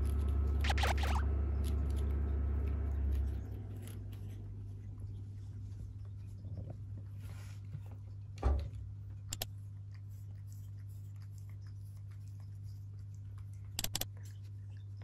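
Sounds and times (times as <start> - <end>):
steady low hum: 0.0 - 15.0
light clicks and ticks: 13.6 - 14.4.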